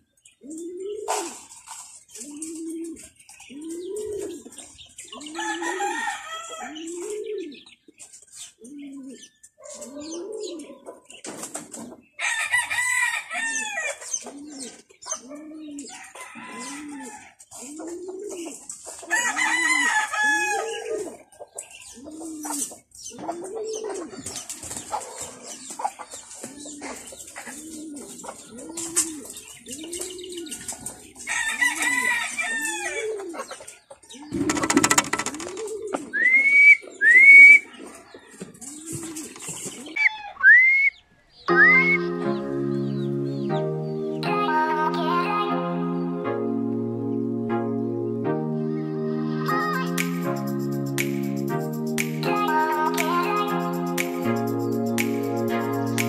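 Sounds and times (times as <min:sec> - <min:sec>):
pigeons cooing: 0:00.3 - 0:12.0, 0:12.8 - 0:40.7
rooster crowing: 0:05.3 - 0:06.8, 0:12.2 - 0:14.0, 0:15.9 - 0:17.4, 0:19.1 - 0:21.0, 0:31.3 - 0:33.1.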